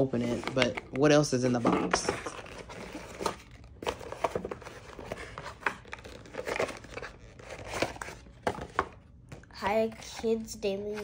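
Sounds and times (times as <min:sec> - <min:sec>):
cardboard rustling: 0:00.0 - 0:11.0.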